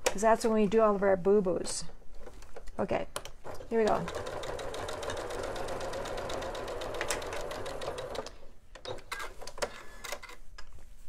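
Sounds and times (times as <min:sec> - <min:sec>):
sewing machine stitching: 0:03.5 - 0:10.1.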